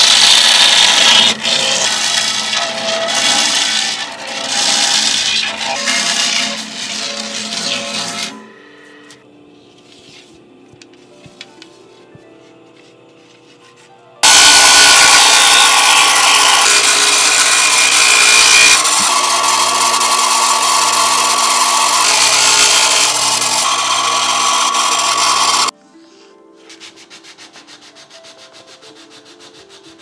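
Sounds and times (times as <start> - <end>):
abrasive wheel grinding bamboo: 0.0 - 8.4, 14.2 - 25.7
motor hum: 14.2 - 25.7.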